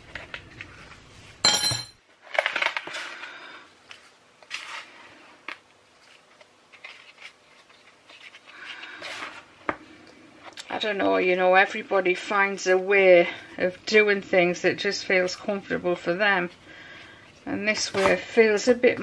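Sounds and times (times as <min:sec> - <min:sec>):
powder crunching and rustling: 0:04.0 - 0:09.6.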